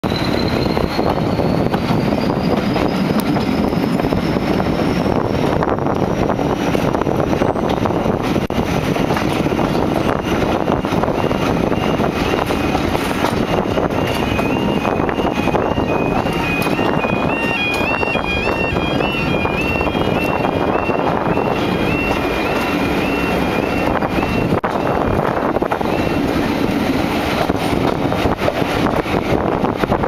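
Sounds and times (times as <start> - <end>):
diesel locomotive engine rumble: 0.0 - 30.0
wheel and wind noise: 0.0 - 30.0
two-tone level crossing alarm: 7.4 - 26.9.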